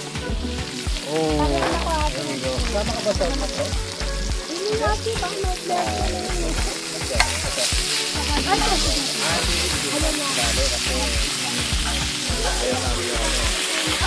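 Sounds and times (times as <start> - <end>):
background music with bass: 0.0 - 14.0
meat sizzling on griddle: 0.0 - 14.0
tongs clicking on griddle: 5.6 - 12.2.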